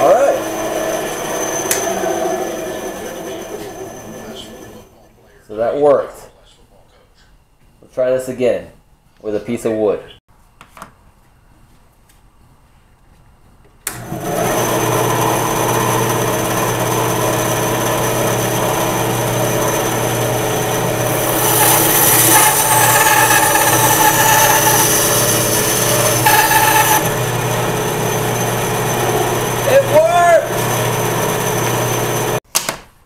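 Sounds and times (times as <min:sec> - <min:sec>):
saw blade cutting wood: 0:00.0 - 0:04.7, 0:14.1 - 0:32.4
band saw humming: 0:00.0 - 0:04.9, 0:14.0 - 0:32.4.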